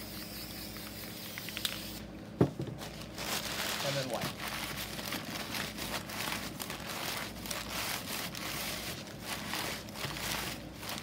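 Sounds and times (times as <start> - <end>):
newspaper crinkling and rubbing on wood: 2.8 - 11.0.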